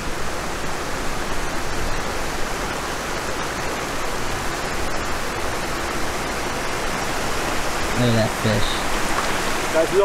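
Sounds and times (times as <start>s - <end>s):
river flowing over rocks: 0.0s - 10.0s.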